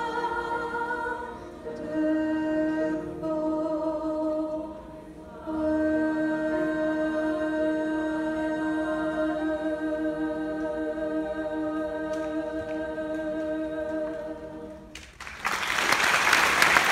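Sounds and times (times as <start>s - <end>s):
choir singing sustained chord: 0.0s - 15.0s
audience applause: 14.9s - 16.9s.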